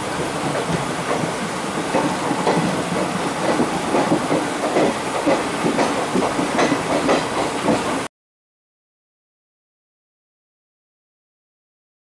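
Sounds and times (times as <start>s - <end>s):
train rumble and hiss: 0.0s - 8.1s
train wheels clattering over joints: 0.0s - 8.1s.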